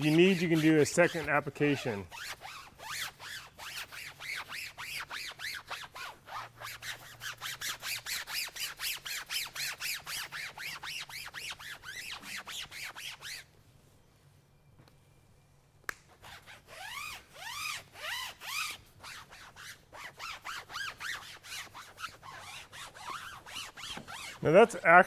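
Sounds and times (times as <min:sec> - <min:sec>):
foam applicator scuffing on vinyl: 0:00.0 - 0:05.6, 0:20.8 - 0:24.8.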